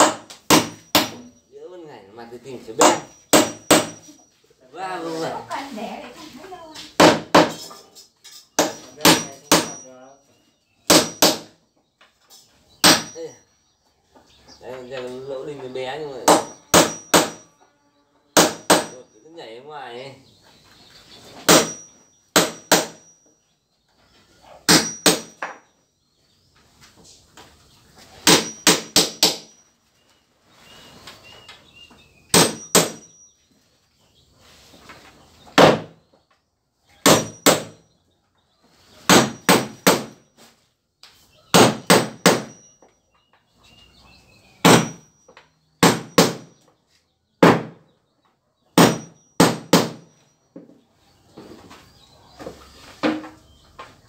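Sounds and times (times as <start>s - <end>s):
hammer driving nails into wood: 0.0s - 1.3s, 2.8s - 4.1s, 8.6s - 9.8s, 10.9s - 11.6s, 12.8s - 13.2s, 16.3s - 17.4s, 18.4s - 19.0s, 21.4s - 23.0s, 24.7s - 25.6s, 28.2s - 29.5s, 32.3s - 33.1s, 35.6s - 36.0s, 37.0s - 37.8s, 39.1s - 40.2s, 41.5s - 42.7s, 44.6s - 45.0s, 45.8s - 46.5s, 48.8s - 50.1s.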